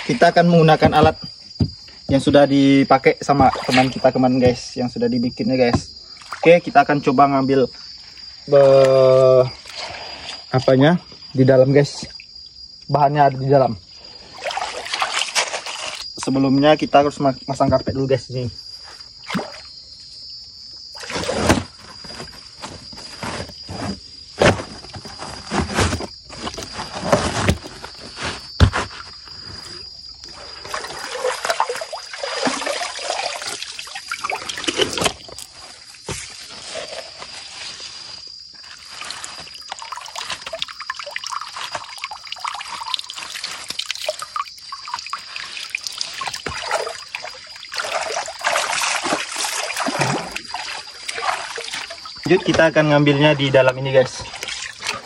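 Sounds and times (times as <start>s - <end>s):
high insect drone: 0.0s - 55.0s
knocks and thumps of handling: 0.7s - 2.4s, 21.1s - 29.8s
water trickling and splashing: 3.2s - 4.7s, 5.7s - 6.7s, 13.9s - 16.3s, 19.0s - 19.9s, 28.9s - 55.0s.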